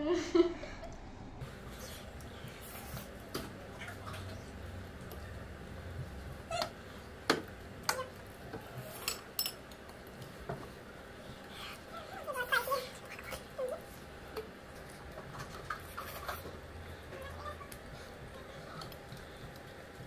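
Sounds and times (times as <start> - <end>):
quiet eating: 0.8 - 20.0
forks clinking against glass bowls: 9.0 - 9.6.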